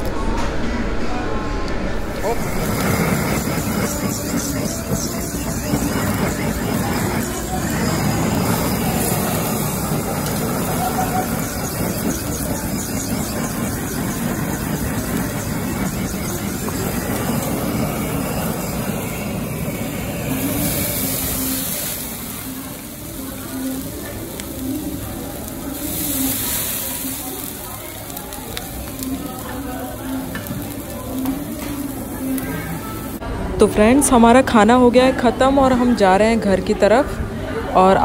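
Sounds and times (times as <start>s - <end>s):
blowtorch flame hissing: 2.1s - 33.2s.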